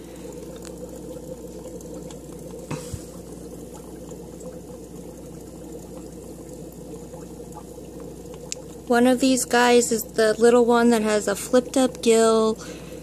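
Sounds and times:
low hum: 0.0s - 12.0s
fish tank water bubbling: 0.0s - 13.0s.

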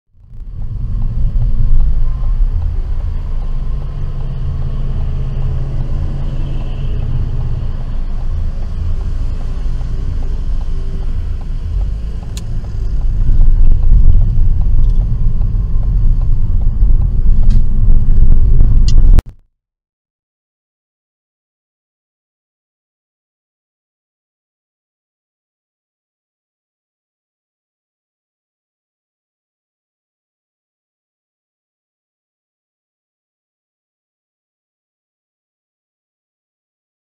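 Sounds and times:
car engine and road noise: 0.1s - 19.4s.

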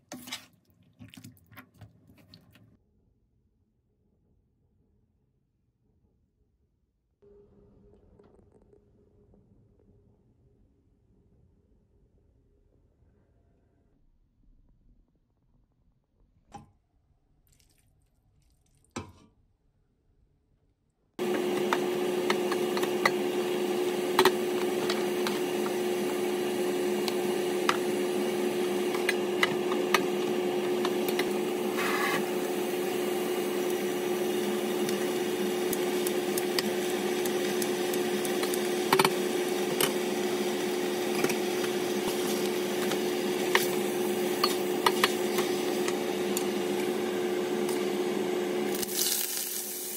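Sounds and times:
ladle scraping steel pot: 21.2s - 47.9s
steady hum: 21.2s - 48.9s.

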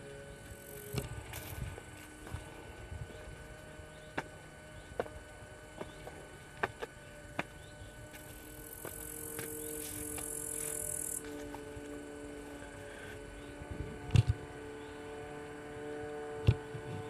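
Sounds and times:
faint steady hum: 0.0s - 17.0s
footsteps on stone: 0.7s - 3.2s, 4.0s - 13.1s.

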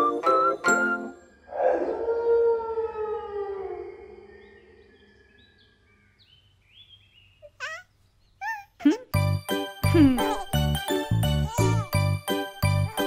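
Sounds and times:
eerie howling tone with hiss: 1.3s - 6.0s.

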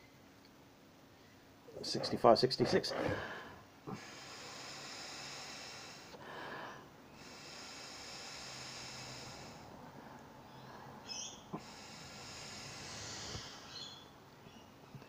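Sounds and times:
breath blowing through hoses: 3.0s - 9.8s, 11.5s - 14.0s.

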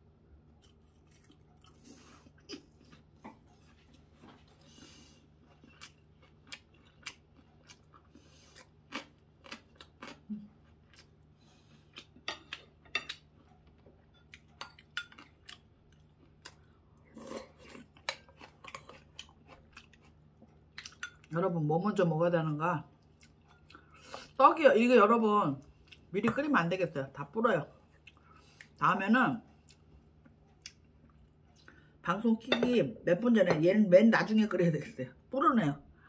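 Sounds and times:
quiet chewing: 0.6s - 21.3s, 27.8s - 28.8s, 29.5s - 31.9s.

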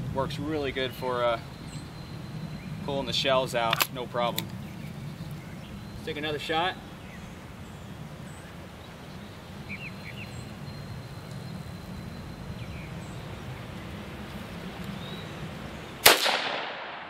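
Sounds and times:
faint bird chirps: 0.5s - 3.4s, 4.6s - 16.0s
sharp gunshot: 16.0s - 17.0s.

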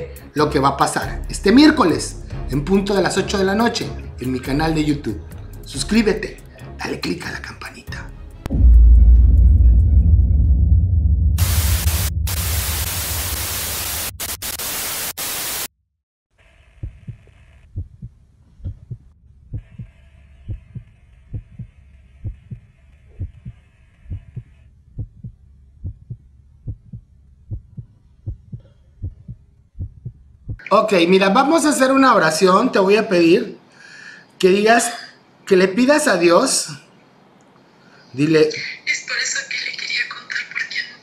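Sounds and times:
short low thumps: 8.5s - 13.0s, 16.8s - 19.8s, 20.5s - 23.5s, 24.1s - 30.6s
low boom: 8.5s - 13.4s
loud static hiss: 11.4s - 15.7s.

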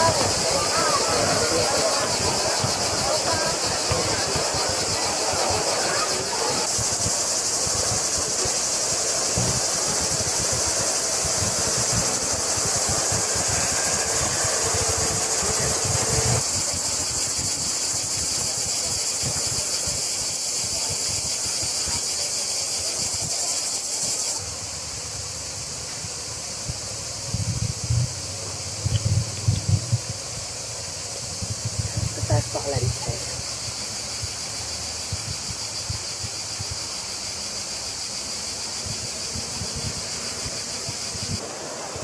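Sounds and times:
cicadas buzzing: 0.0s - 42.0s
low outdoor rumble: 6.8s - 16.9s, 24.6s - 34.0s.

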